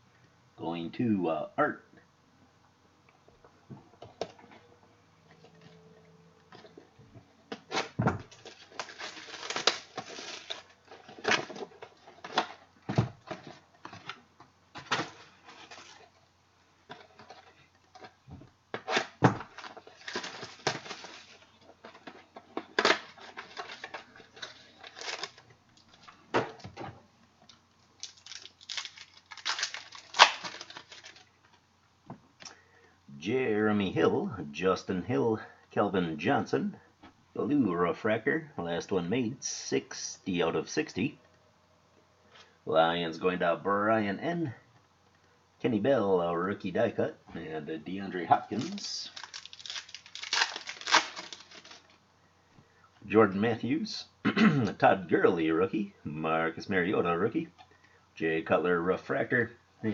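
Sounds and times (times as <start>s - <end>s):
wrapper crinkling and tearing: 7.6s - 12.6s, 14.8s - 16.2s, 18.8s - 26.1s, 27.5s - 31.4s, 48.4s - 52.0s.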